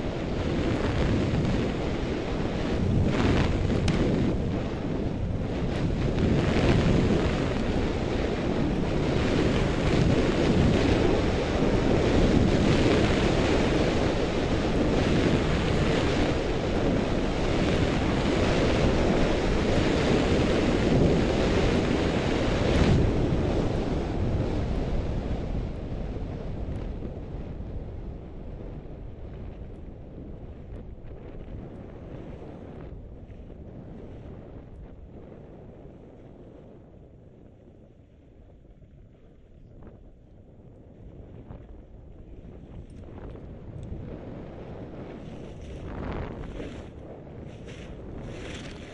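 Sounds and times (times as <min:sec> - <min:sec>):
wind rushing over microphone: 0:00.0 - 0:48.9
skis scraping on snow: 0:00.1 - 0:04.8, 0:44.3 - 0:48.9.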